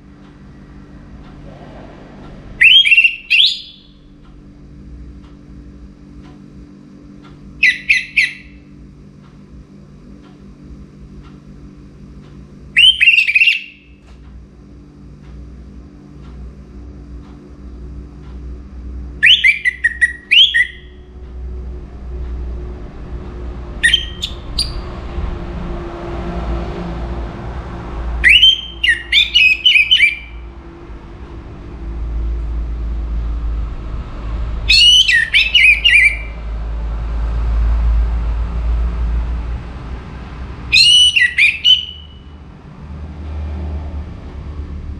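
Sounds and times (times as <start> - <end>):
low background rumble: 0.0 - 12.8, 13.8 - 44.9
thrush singing: 0.8 - 4.1, 26.9 - 31.1, 34.6 - 36.5, 40.6 - 42.4.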